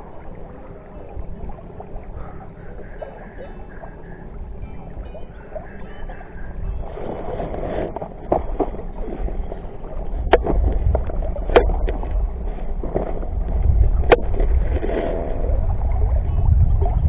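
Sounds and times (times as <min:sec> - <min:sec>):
low rumble: 0:06.4 - 0:17.0.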